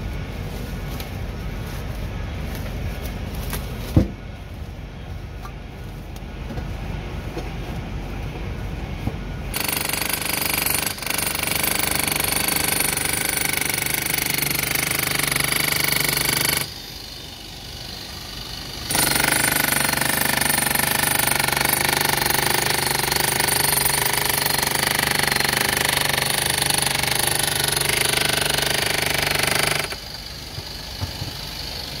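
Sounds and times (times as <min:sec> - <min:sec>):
power tool hammering masonry: 0:09.5 - 0:17.2, 0:17.8 - 0:32.0.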